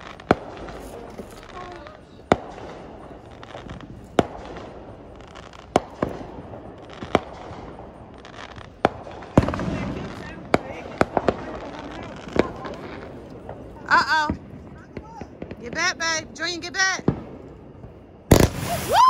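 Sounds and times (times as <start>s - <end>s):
fireworks bangs: 0.0s - 19.0s
steady background hiss: 0.0s - 19.0s.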